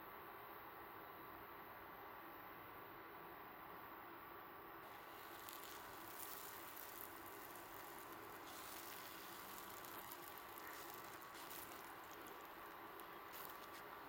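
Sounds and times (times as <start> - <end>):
flatbread sizzling in oil: 4.8 - 14.0
light crackles: 4.8 - 14.0.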